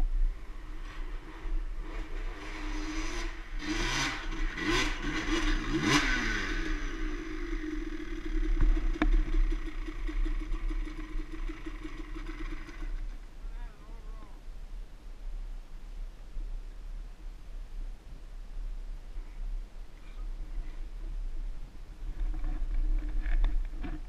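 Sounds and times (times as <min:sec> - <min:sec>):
dirt bike engine idling and revving: 0:00.0 - 0:14.0.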